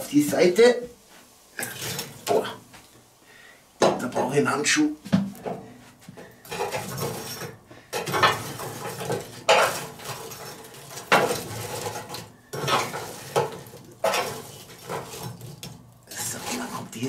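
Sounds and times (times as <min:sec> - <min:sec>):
charcoal scraping against metal: 0:01.6 - 0:02.6, 0:05.4 - 0:17.0.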